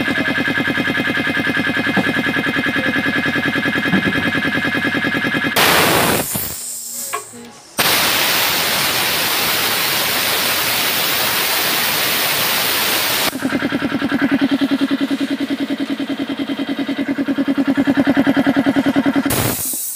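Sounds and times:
air compressor pump chugging: 0.0s - 19.9s
compressed air hissing from valve: 5.6s - 13.4s, 19.2s - 19.9s.

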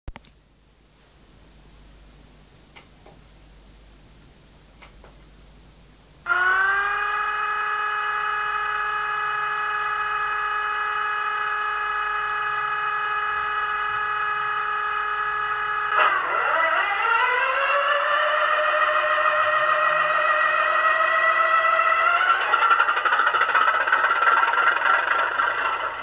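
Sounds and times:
diesel engine sound through small speaker: 6.3s - 26.0s.

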